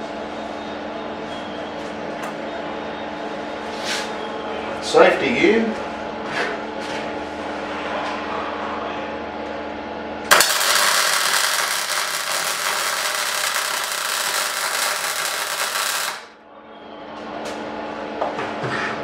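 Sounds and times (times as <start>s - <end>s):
welding arc sizzling: 10.3s - 16.4s.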